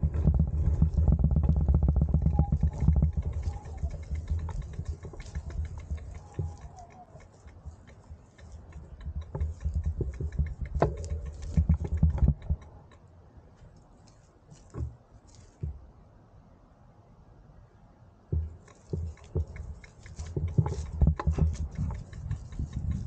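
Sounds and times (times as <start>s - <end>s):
bicycle freewheel ticking: 0.0s - 12.8s, 18.7s - 23.0s
wind rumble on microphone: 0.0s - 13.0s, 18.3s - 23.0s.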